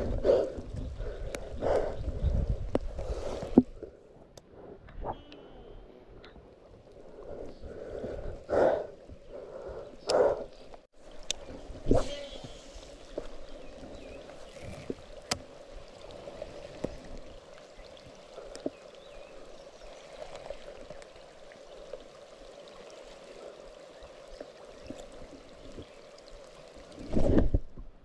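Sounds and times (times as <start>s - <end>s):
gentle wash of water: 10.9s - 28.0s.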